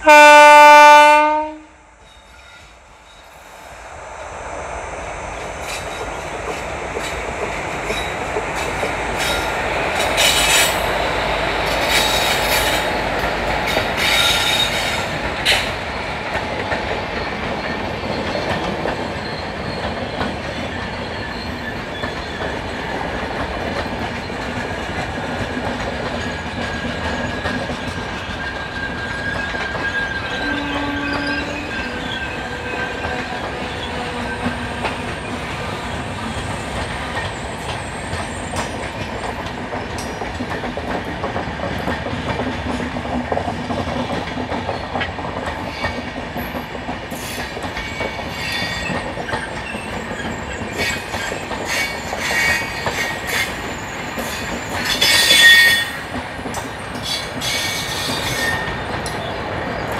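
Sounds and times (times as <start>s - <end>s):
train wheels rumbling on rail: 0.0s - 59.9s
high wheel squeal: 17.2s - 22.5s, 26.3s - 38.8s, 47.2s - 59.9s.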